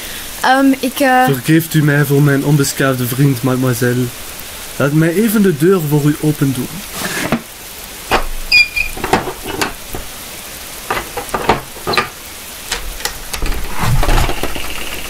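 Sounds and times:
high door squeak: 8.1s - 10.0s, 10.9s - 12.2s
locks and latches clicking: 8.1s - 10.1s, 10.9s - 14.6s.

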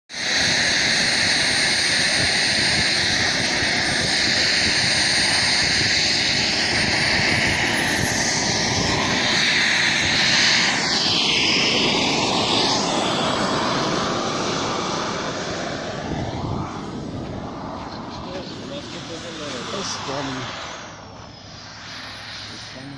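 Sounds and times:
model jet turbine running: 0.1s - 22.9s
thin high turbine whine: 0.1s - 22.9s.

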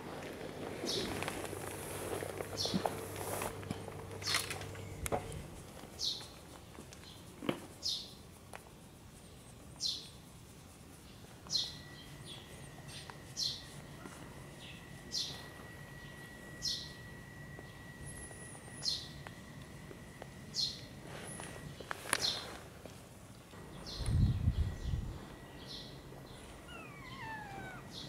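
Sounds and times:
faint high whine: 0.0s - 6.2s, 10.3s - 28.0s
bird chirps sliding downward: 23.9s - 28.0s.

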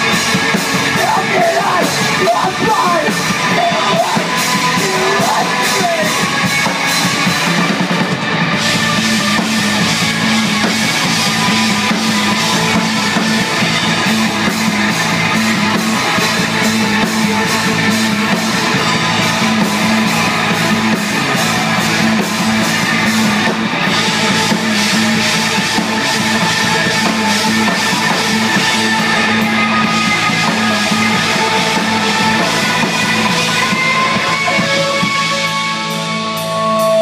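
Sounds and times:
bass guitar: 0.0s - 37.0s
drum kit beat: 0.0s - 37.0s
electric guitars: 0.0s - 37.0s.

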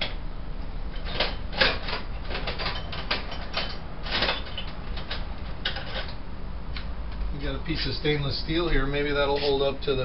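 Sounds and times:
steady low hum: 0.0s - 10.0s
metal tools clinking: 1.0s - 6.2s.

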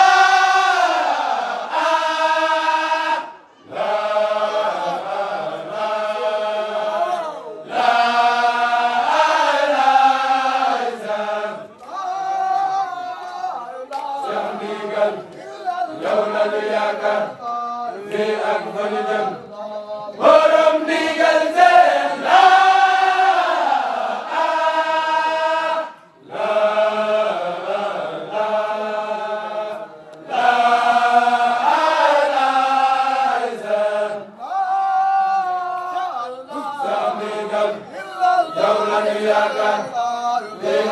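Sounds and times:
men chanting in unison: 0.0s - 40.9s.

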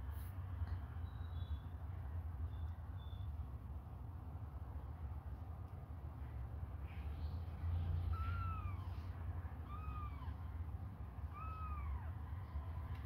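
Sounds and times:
kittens mewing: 8.0s - 13.0s.

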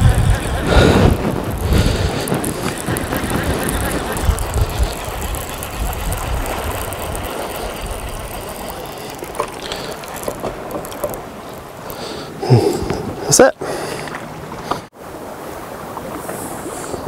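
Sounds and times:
casting reel gears ticking: 0.0s - 12.4s.

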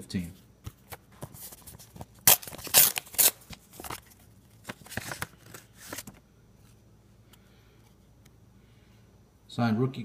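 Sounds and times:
paper envelope rustling: 0.7s - 6.2s.

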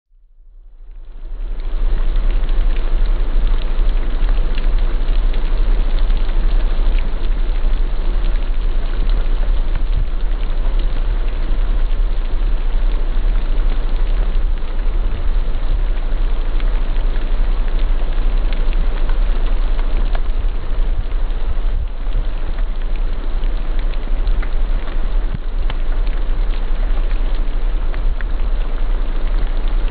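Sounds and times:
deep low rumble: 0.1s - 29.9s
steady rain falling: 0.5s - 29.9s.

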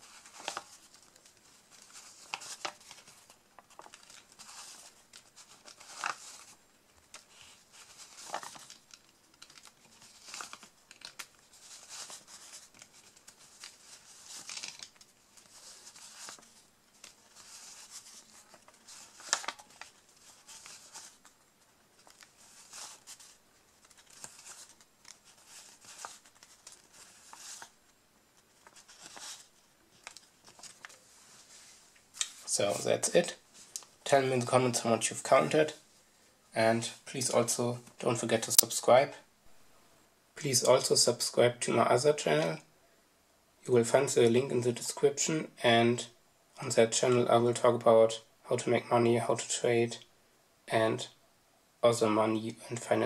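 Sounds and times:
banknotes rustling and snapping: 0.0s - 27.8s, 28.4s - 32.5s.

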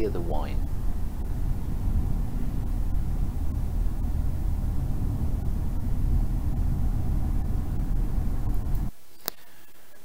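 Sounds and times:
road and wind rumble in car: 0.0s - 9.0s.

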